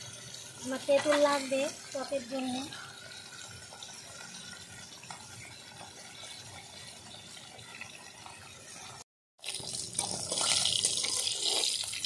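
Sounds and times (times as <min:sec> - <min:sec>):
fish frying in oil: 0:00.0 - 0:12.0.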